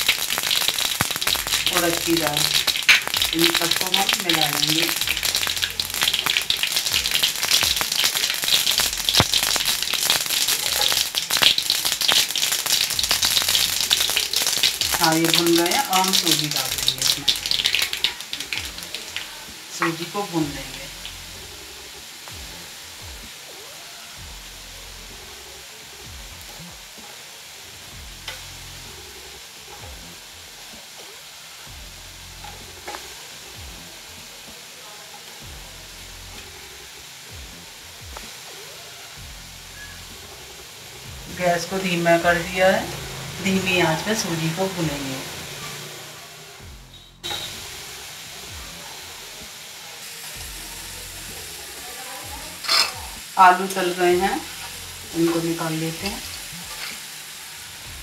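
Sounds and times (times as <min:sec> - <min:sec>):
mustard seeds popping: 0:00.0 - 0:20.6
spices sizzling in hot oil: 0:00.0 - 0:58.0
spatula scraping pan: 0:52.6 - 0:53.0, 0:56.7 - 0:57.0.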